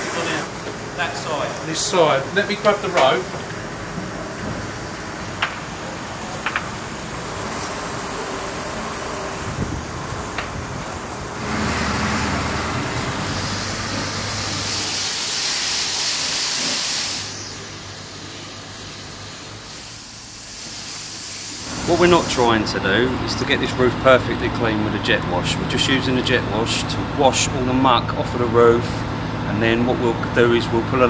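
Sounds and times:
low engine hum: 3.5 - 14.9
pressure washer spray hissing: 11.4 - 22.9.

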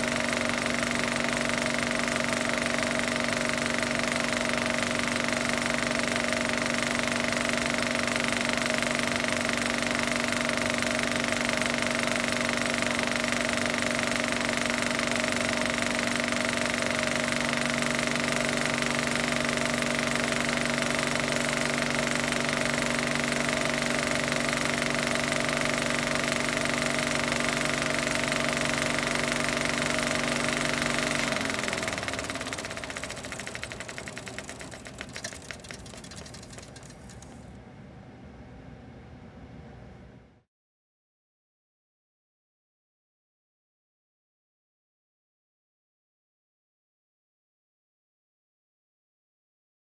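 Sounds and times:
motor humming and winding down: 0.0 - 37.5.

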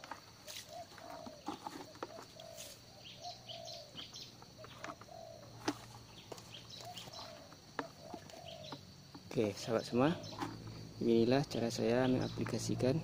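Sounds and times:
higher bird chirps: 0.5 - 13.0
bird cooing: 0.7 - 5.9, 6.6 - 8.8, 10.0 - 10.7.

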